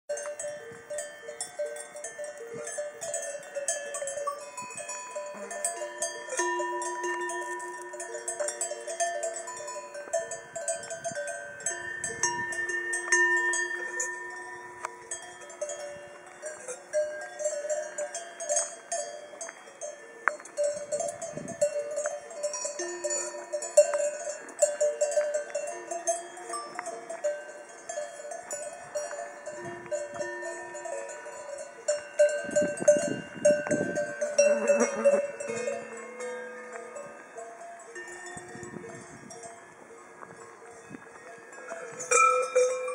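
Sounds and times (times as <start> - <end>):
cowbells clanking: 0.1 - 42.9.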